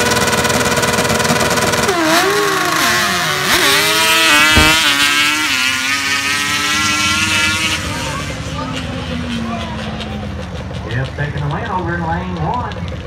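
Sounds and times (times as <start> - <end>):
quad engines revving: 0.0 - 13.0.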